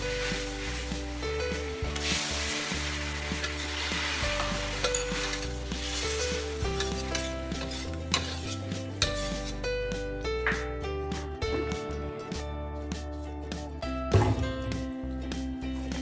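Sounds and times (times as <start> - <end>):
meat sizzling in a wok: 0.0 - 8.8.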